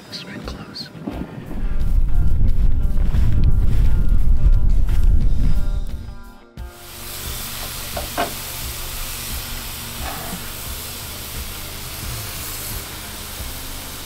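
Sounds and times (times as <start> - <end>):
low hum: 1.2 - 12.1
meat sizzling in a pan: 6.7 - 14.0.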